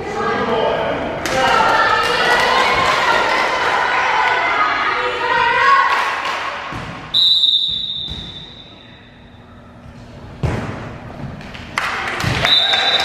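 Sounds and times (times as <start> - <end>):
volleyball being struck: 6.7 - 8.7
referee's whistle blast: 7.1 - 8.9.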